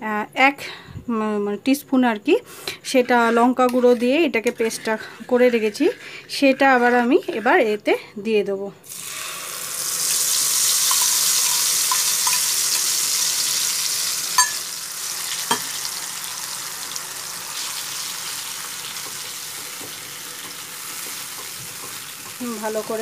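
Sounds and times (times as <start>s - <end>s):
stirring in a pan: 2.9s - 7.8s, 16.9s - 23.0s
spice paste sizzling in oil: 8.9s - 23.0s.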